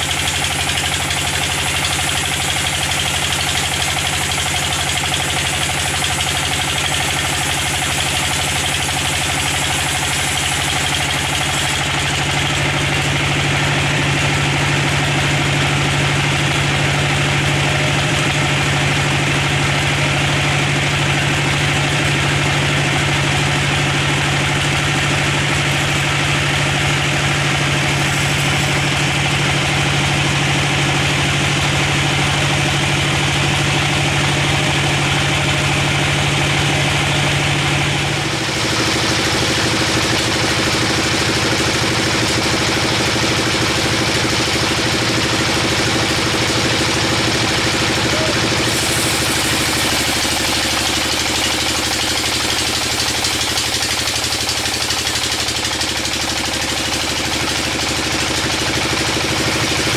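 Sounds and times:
bandsaw mill drive drone: 0:25.5 - 0:30.4, 0:34.1 - 0:59.9
saw blade cutting wood: 0:27.6 - 0:29.3, 0:48.0 - 0:59.9.

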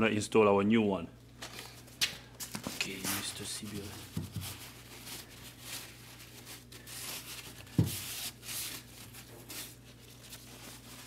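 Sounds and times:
paper towel wiping plastic: 0:02.6 - 0:11.0.

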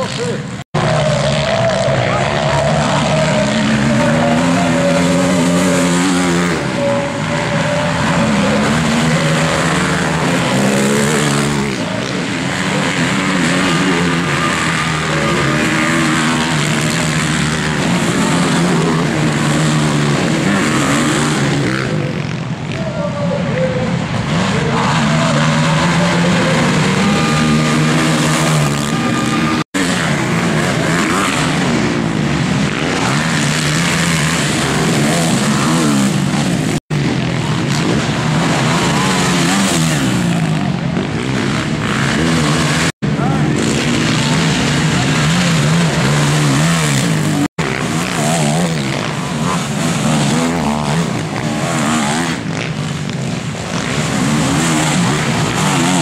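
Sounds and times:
quad engines revving: 0:00.0 - 0:56.0.

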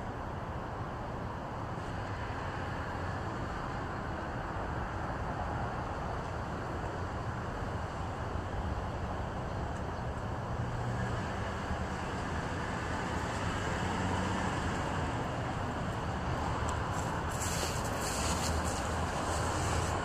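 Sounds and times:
faint crackles: 0:16.6 - 0:20.0.

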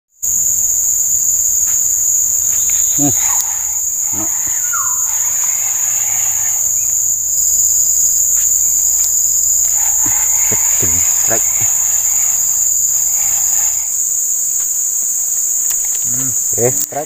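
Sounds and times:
insect chorus drone: 0:00.1 - 0:17.0
faint short calls: 0:02.4 - 0:07.7.

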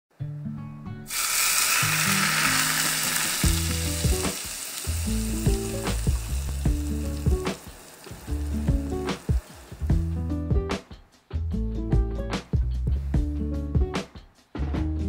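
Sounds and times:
hot oil sizzling: 0:01.1 - 0:10.2.

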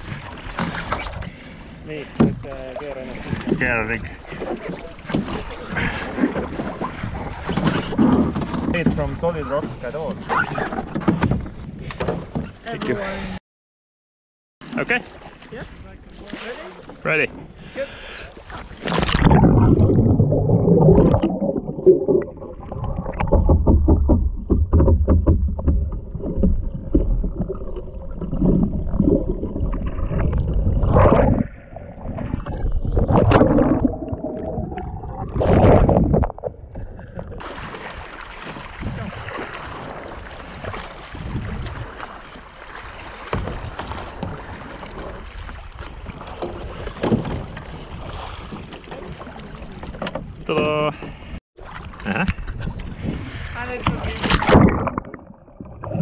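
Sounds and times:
lapping water: 0:00.0 - 0:08.2
muffled underwater gurgling: 0:19.1 - 0:24.1
water surges: 0:37.4 - 0:49.9.

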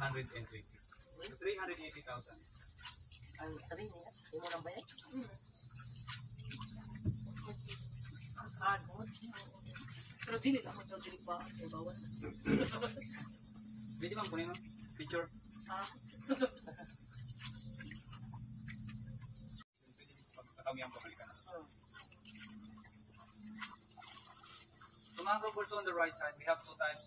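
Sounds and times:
insects droning shrilly: 0:00.0 - 0:27.0.

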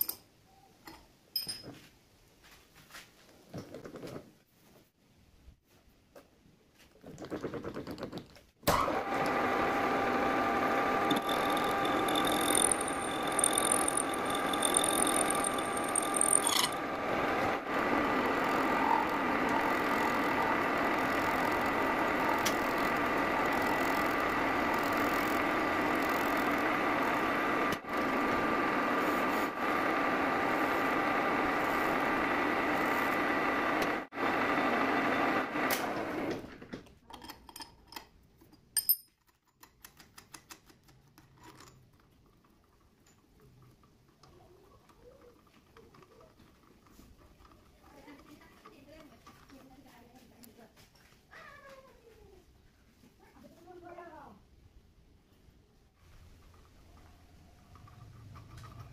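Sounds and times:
metal lathe humming: 0:09.0 - 0:36.2
thin high whine: 0:09.9 - 0:34.1.

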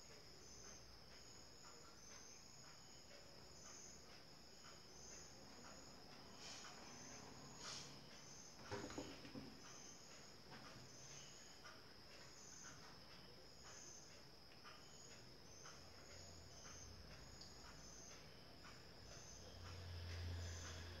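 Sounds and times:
high-pitched insect chirps: 0:09.6 - 0:21.0.

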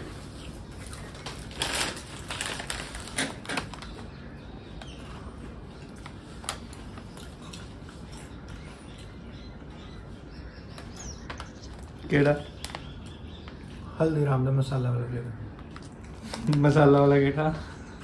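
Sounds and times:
chips and packet crackling: 0:00.8 - 0:04.0.

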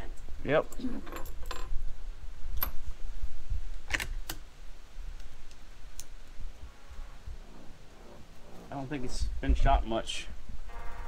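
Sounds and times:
wind rumble on microphone: 0:06.2 - 0:11.0.

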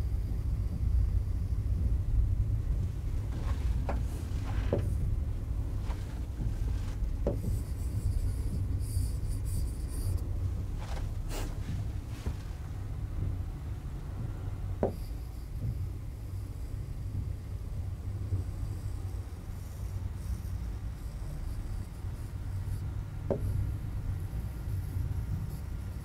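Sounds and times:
low hum: 0:00.0 - 0:26.0
pen scratching and tapping on screen: 0:05.8 - 0:10.2, 0:14.8 - 0:15.7, 0:19.6 - 0:26.0.

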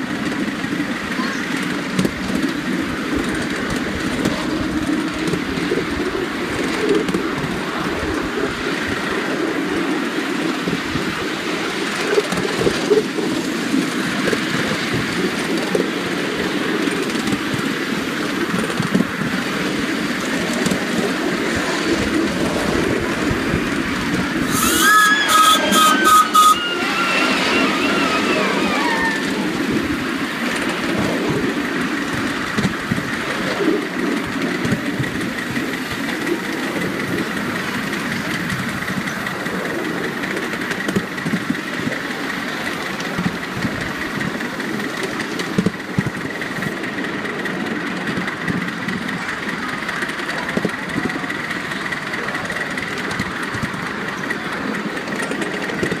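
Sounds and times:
miniature steam locomotive running: 0:00.0 - 0:56.0
wheels clicking on rails: 0:00.0 - 0:56.0.

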